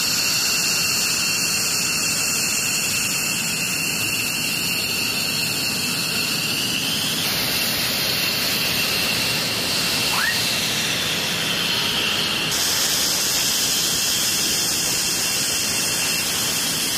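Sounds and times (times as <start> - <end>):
jet engines whining: 0.0 - 16.9
brief rising squeak: 10.0 - 10.6.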